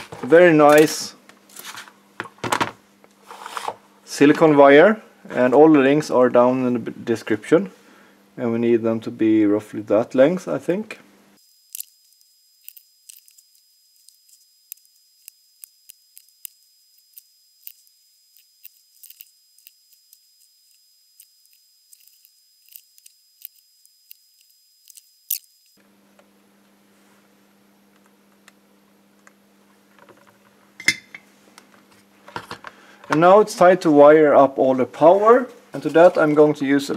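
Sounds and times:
wire and soldering iron clicks: 0:11.7 - 0:25.8.

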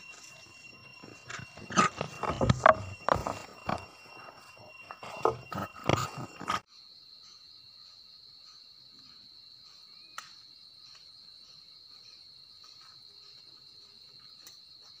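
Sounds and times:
insects droning: 0:00.0 - 0:15.0.

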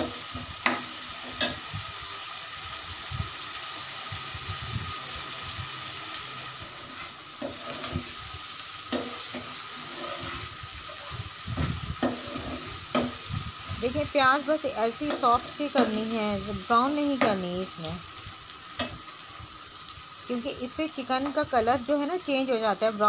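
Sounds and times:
onions sizzling in oil: 0:00.0 - 0:23.0
metal ladle scraping pan: 0:06.8 - 0:08.2, 0:08.9 - 0:10.6, 0:12.0 - 0:13.3.

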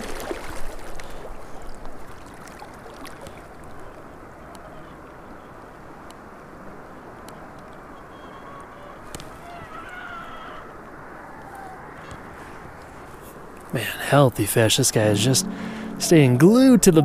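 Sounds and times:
river current rushing: 0:12.3 - 0:17.0.

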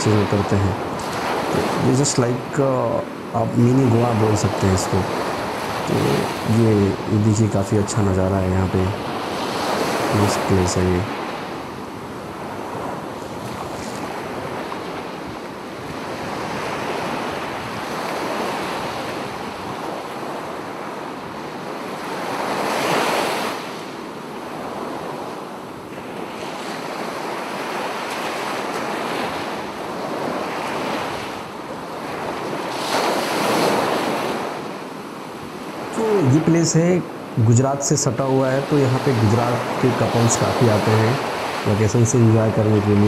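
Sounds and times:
surf breaking on sandy beach: 0:00.0 - 0:07.2, 0:35.6 - 0:43.0.

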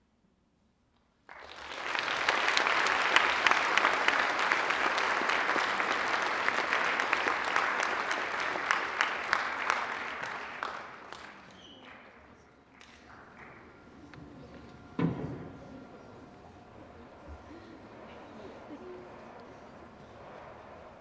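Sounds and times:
audience applauding: 0:01.2 - 0:15.0.

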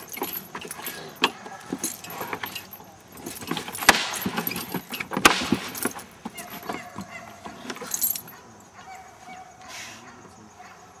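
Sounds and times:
metal chain rattling: 0:00.0 - 0:09.1
sharp knocks: 0:03.4 - 0:07.8.

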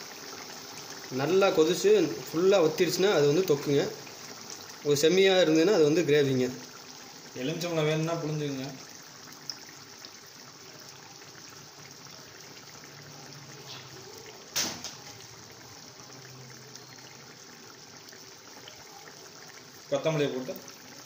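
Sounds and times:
thick sauce bubbling in a pot: 0:00.0 - 0:21.0
sharp knock: 0:14.6 - 0:15.0.

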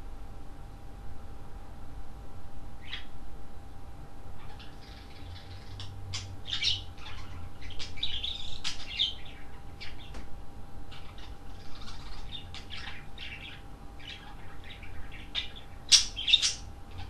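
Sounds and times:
budgerigars chirping: 0:02.8 - 0:03.1, 0:04.4 - 0:10.2, 0:10.9 - 0:17.0.

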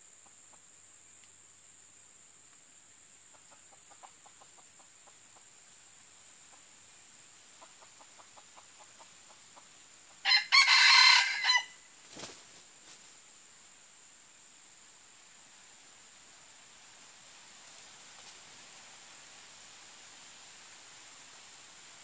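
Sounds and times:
rustle: 0:00.0 - 0:22.0
rooster crowing: 0:10.2 - 0:11.9.

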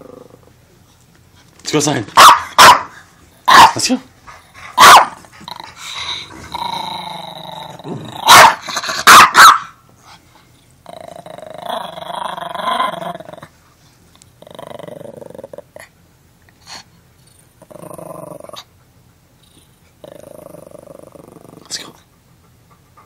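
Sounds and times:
small dog growling: 0:00.0 - 0:00.6, 0:05.4 - 0:08.3, 0:10.8 - 0:13.5, 0:14.4 - 0:15.9, 0:17.4 - 0:18.7, 0:19.4 - 0:22.0
small dog barking: 0:02.2 - 0:03.9, 0:04.8 - 0:05.2, 0:08.2 - 0:09.8.

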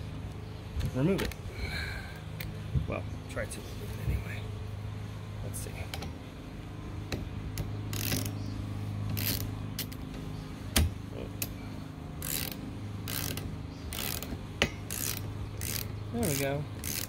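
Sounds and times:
steady low hum: 0:00.0 - 0:17.0
ratchet clicking: 0:07.5 - 0:08.4, 0:09.1 - 0:10.0, 0:12.2 - 0:17.0.

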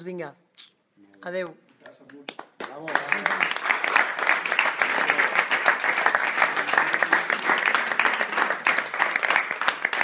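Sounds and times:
people applauding: 0:01.9 - 0:10.0.

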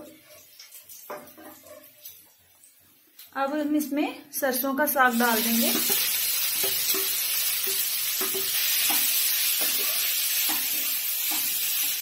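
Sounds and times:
spatula stirring: 0:00.0 - 0:02.3, 0:05.7 - 0:12.0
greens sizzling in hot oil: 0:04.9 - 0:12.0.

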